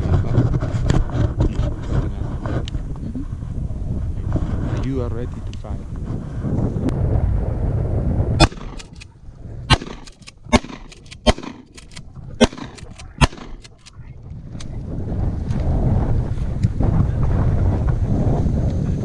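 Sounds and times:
wind rumble on microphone: 0.0s - 19.0s
shotgun firing: 8.4s - 9.1s, 9.7s - 13.9s.

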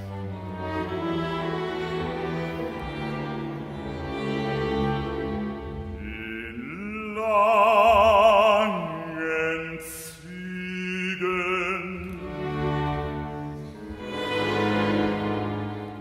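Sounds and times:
string orchestra: 0.0s - 16.0s
operatic male singing: 5.9s - 12.6s.

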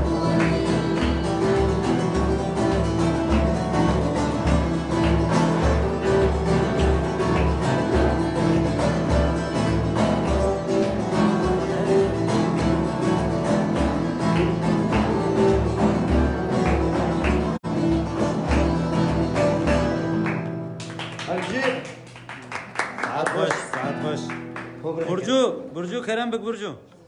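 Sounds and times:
plucked long-necked lute: 0.0s - 20.8s
acoustic guitar: 0.0s - 26.1s.

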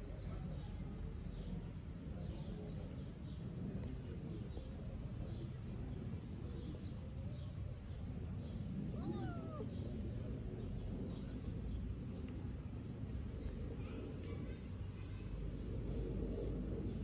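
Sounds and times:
low background rumble: 0.0s - 17.0s
kitten mewing: 8.9s - 9.8s.

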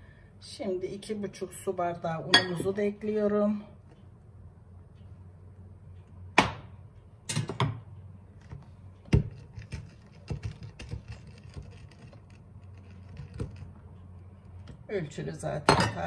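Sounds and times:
glassware clinking: 2.3s - 2.7s, 15.7s - 16.0s.

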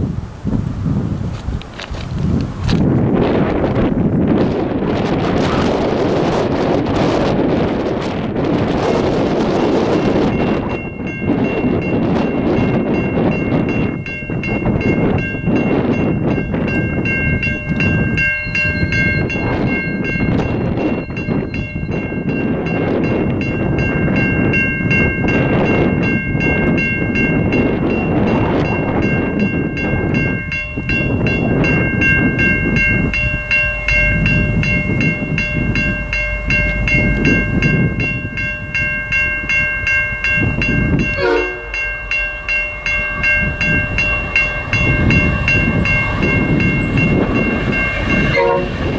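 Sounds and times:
heavy low rumble: 0.0s - 48.9s
level crossing bell ringing: 10.2s - 48.9s.

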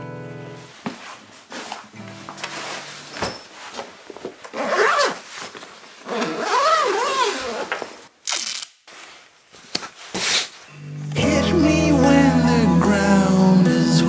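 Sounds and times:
zip squealing pulls: 4.5s - 5.3s, 6.0s - 8.7s
masking tape rip: 6.1s - 8.8s.

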